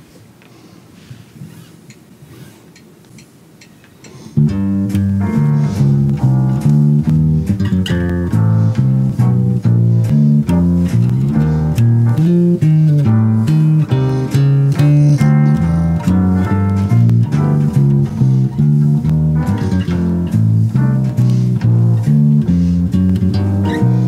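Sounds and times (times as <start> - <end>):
electric bass plucked notes: 4.4 - 24.0.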